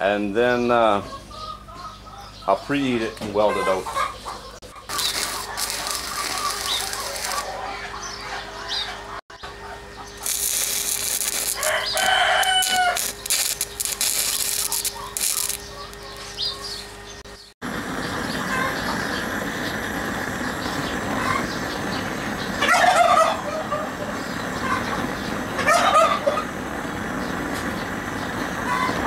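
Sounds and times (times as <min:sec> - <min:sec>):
gas torch hissing: 0:04.9 - 0:07.6, 0:10.2 - 0:16.4, 0:17.7 - 0:22.5
welding arc crackling and hissing: 0:04.9 - 0:07.6, 0:10.2 - 0:16.5, 0:17.6 - 0:22.6
rooster crowing: 0:10.2 - 0:16.2, 0:22.6 - 0:23.9, 0:25.6 - 0:26.4.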